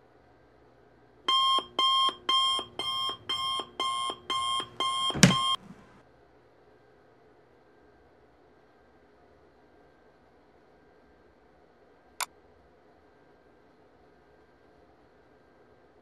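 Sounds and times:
electronic alarm beeping: 0:01.3 - 0:05.8.

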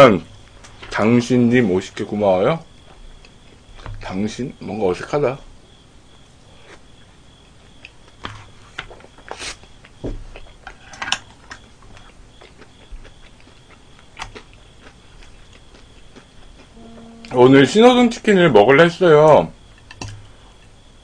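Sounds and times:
chewing fried chicken: 0:06.5 - 0:16.8.

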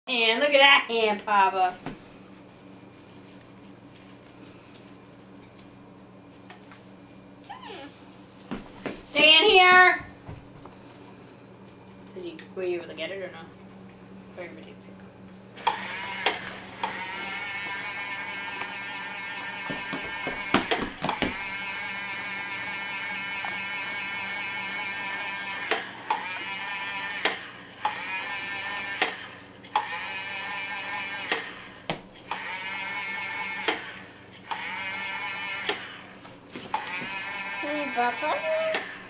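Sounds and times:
toy electronic whine: 0:15.7 - 0:20.6, 0:21.2 - 0:36.1.

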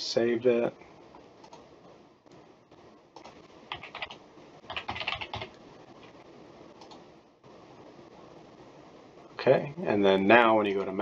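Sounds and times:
computer keyboard typing: 0:03.2 - 0:06.1.

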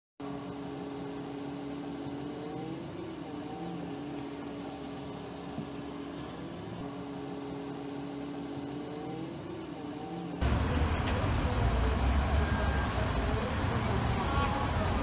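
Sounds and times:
vehicle engine hum: 0:00.2 - 0:15.0.

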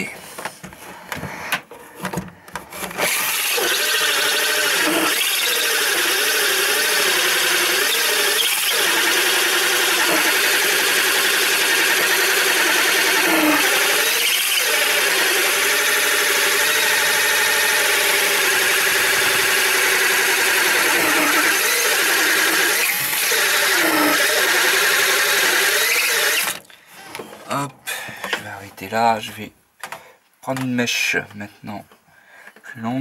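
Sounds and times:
cordless drill whining under load: 0:02.8 - 0:26.6.

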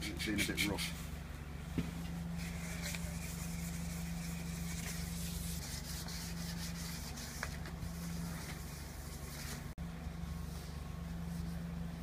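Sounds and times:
low hum: 0:00.0 - 0:12.0
abrasive pad rubbing: 0:01.9 - 0:09.7.

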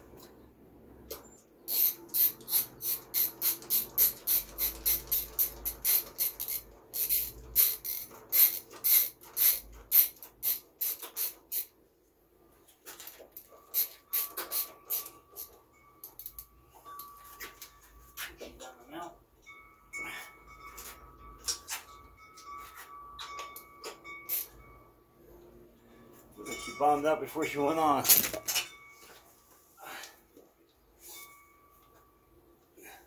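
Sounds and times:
ratchet wrench clicking: 0:01.7 - 0:11.7, 0:13.7 - 0:15.5, 0:24.3 - 0:24.5.

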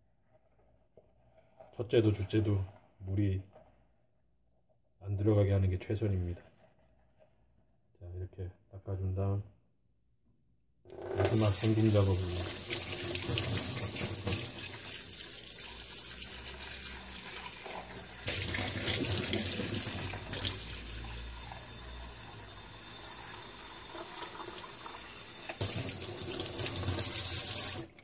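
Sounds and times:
faucet water pouring into pot: 0:11.2 - 0:28.0.

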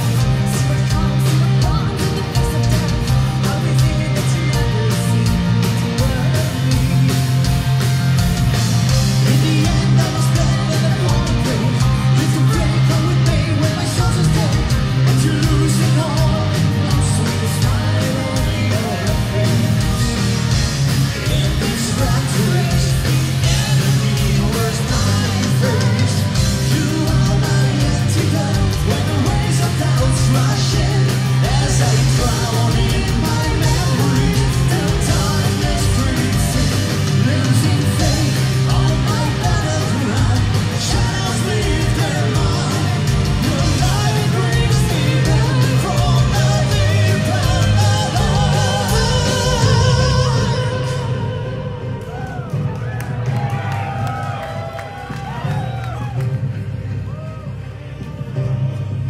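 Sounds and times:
man singing: 0:00.0 - 0:52.2
metal band playing live: 0:00.0 - 0:59.0
woman singing: 0:00.5 - 0:05.4.

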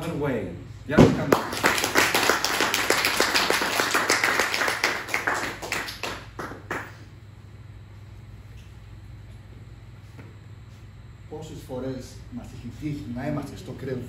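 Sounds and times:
low steady hum: 0:00.0 - 0:14.0
audience applauding: 0:01.3 - 0:07.0.

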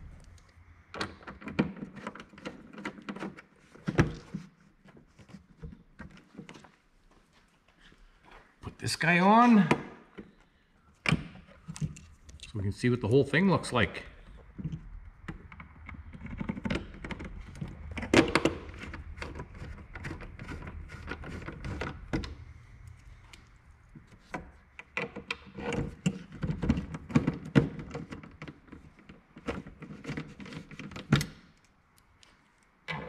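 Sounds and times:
clicks scrapes and knocks: 0:14.3 - 0:33.0.

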